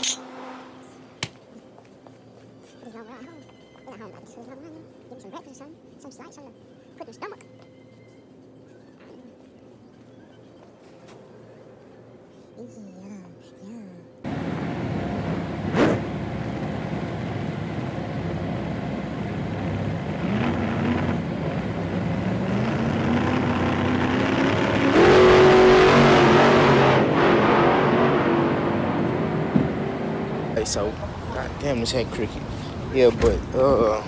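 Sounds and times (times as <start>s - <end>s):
car engine inside cabin: 14.2s - 34.0s.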